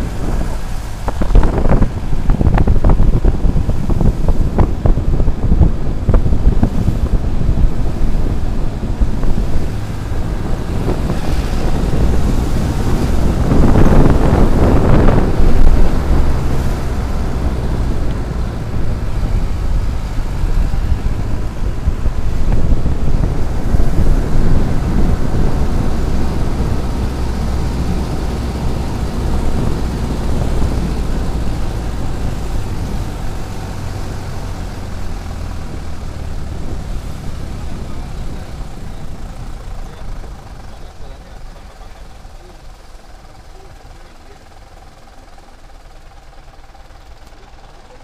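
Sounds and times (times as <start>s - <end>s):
road and wind noise: 0.0s - 48.0s
vehicle engine running: 0.0s - 48.0s.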